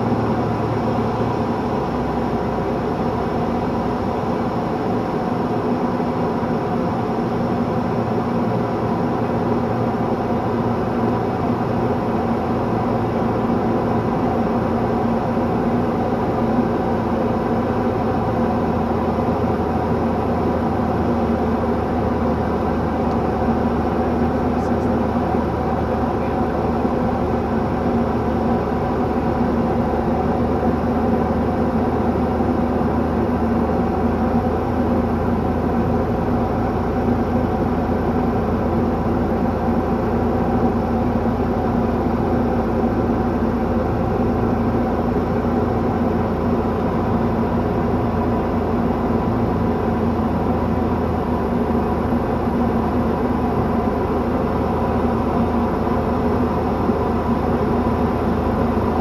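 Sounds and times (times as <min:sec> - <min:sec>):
plane engine droning: 0:00.0 - 0:59.0.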